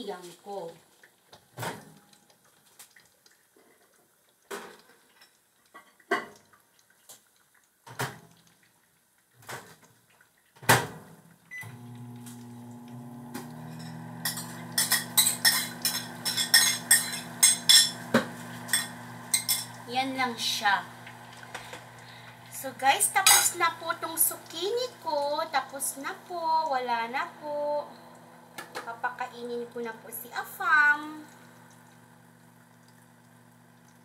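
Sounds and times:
microwave oven humming: 0:11.5 - 0:34.0
dishes clattering: 0:13.6 - 0:19.8
dishes and cutlery clinking: 0:13.7 - 0:19.8.

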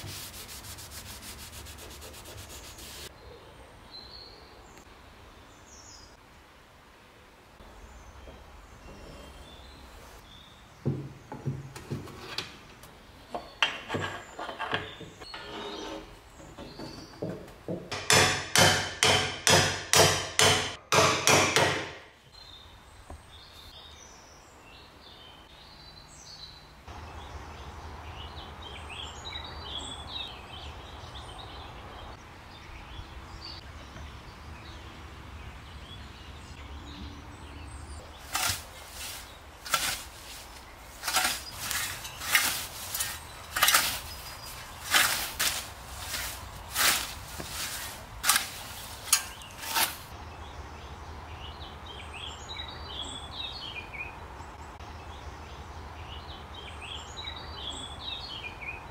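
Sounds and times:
birds chirping: 0:00.0 - 0:06.2, 0:22.2 - 0:58.9
steady outdoor hiss: 0:00.0 - 0:14.4, 0:16.0 - 0:58.9
scythe swishing through grass: 0:38.2 - 0:50.1.

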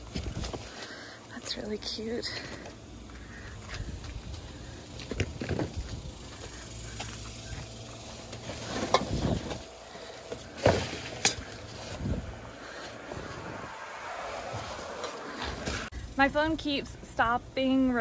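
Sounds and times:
plastic bags rustling and crinkling: 0:00.0 - 0:01.3, 0:07.8 - 0:13.0.

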